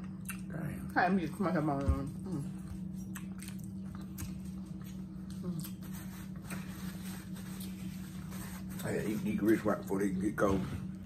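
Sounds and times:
steady low hum: 0.0 - 11.0
people chewing: 1.8 - 9.3.

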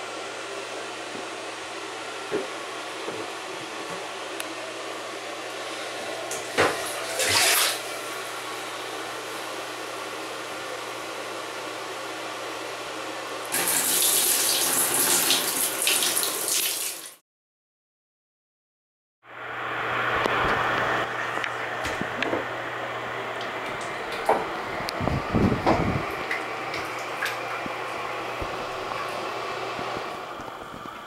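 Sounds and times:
water poured from a washbowl: 7.0 - 7.8
running water hiss: 13.5 - 17.2.

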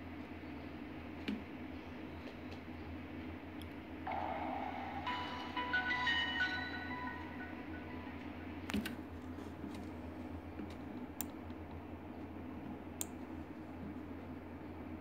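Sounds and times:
steady low hum: 0.0 - 15.0
computer mouse clicking: 8.7 - 9.0.

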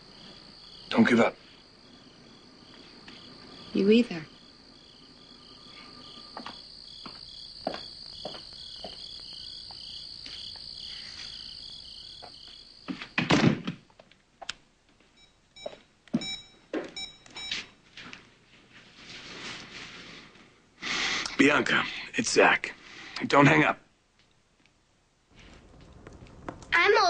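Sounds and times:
crickets chirping: 0.0 - 13.3, 15.2 - 17.8
door being shut: 13.2 - 13.8.

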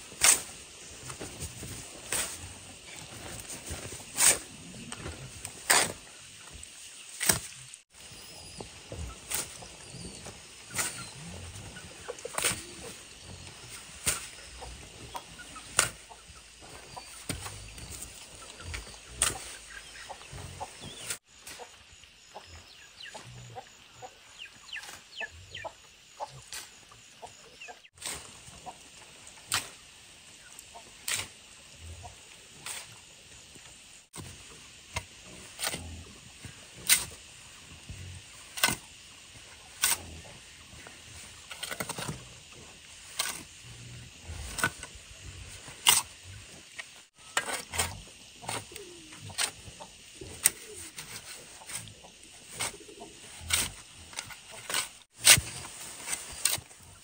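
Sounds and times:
shovel scraping cement and gravel: 0.0 - 6.0, 7.2 - 16.0, 50.4 - 57.0.

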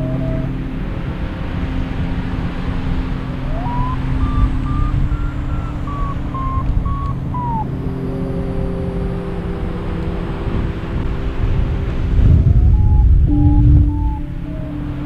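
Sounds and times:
wind on microphone: 0.0 - 15.0
variometer short beeps: 13.3 - 14.8.

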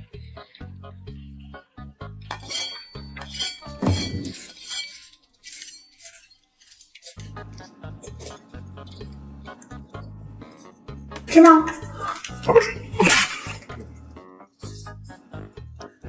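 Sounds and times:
utensils clinking on dishes: 2.3 - 9.6, 11.4 - 13.8.

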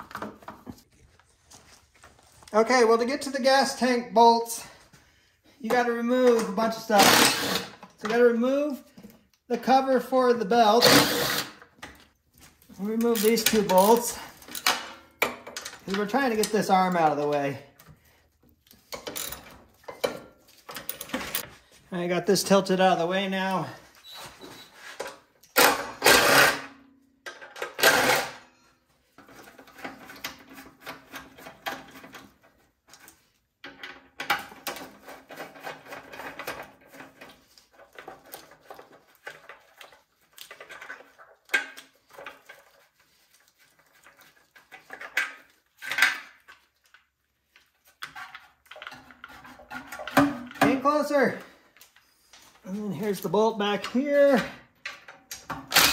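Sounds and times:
tools clicking and rattling: 11.8 - 21.5.

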